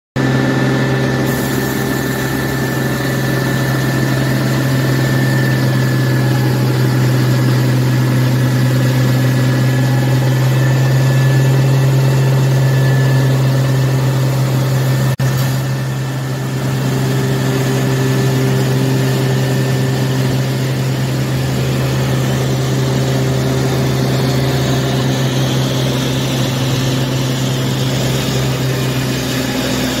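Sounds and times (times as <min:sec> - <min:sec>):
heavy engine droning: 0:00.2 - 0:30.0.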